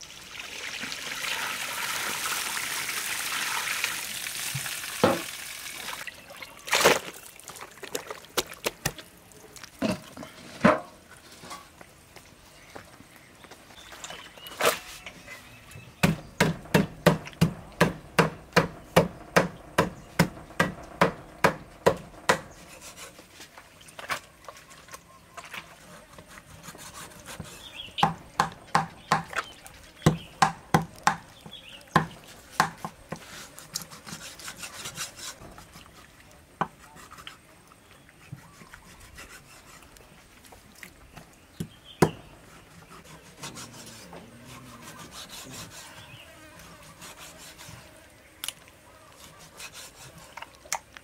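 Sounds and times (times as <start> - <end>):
cleaver chopping meat on wood block: 16.0 - 22.5, 27.4 - 29.4, 30.0 - 33.2, 41.6 - 42.2.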